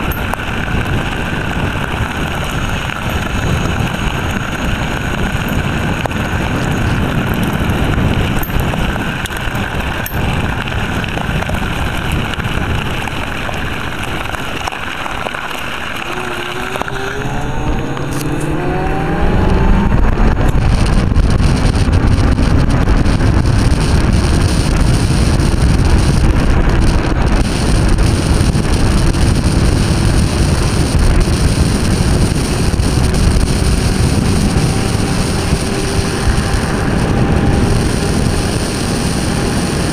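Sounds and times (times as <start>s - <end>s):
electric motor whine: 0.0s - 39.9s
wind on microphone: 0.0s - 39.9s
tyre rumble on gravel: 0.6s - 17.1s.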